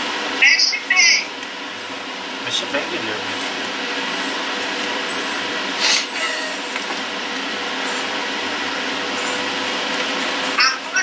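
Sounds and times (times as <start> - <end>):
steady whooshing fan: 0.0 - 11.0.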